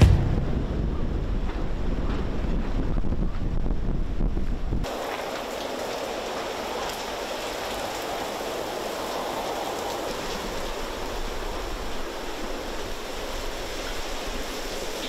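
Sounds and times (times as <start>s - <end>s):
heavy rain pouring: 4.8s - 15.0s.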